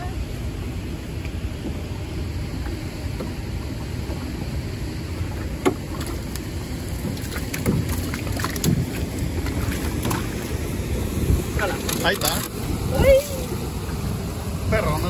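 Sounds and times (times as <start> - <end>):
flowing water: 0.0 - 15.0
wind: 0.0 - 15.0
water splashing and dripping: 5.2 - 14.2.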